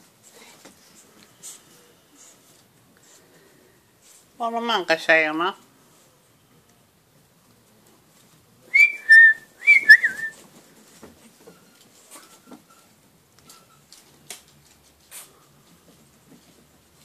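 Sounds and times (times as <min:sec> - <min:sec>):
person whistling calls: 0:08.7 - 0:10.4.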